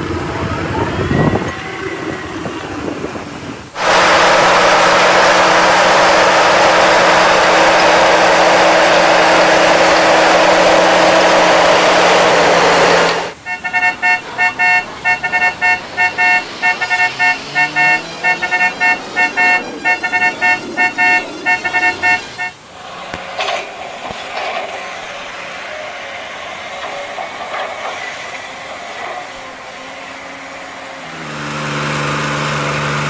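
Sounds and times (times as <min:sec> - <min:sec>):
bulldozer diesel engine running: 0:03.7 - 0:33.0
musical bus horn: 0:03.8 - 0:22.6.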